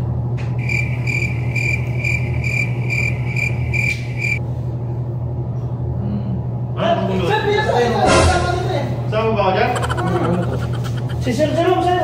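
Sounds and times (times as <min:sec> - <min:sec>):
steady low hum: 0:00.0 - 0:06.8, 0:08.9 - 0:11.9
crickets chirping: 0:00.6 - 0:04.4, 0:09.8 - 0:11.3.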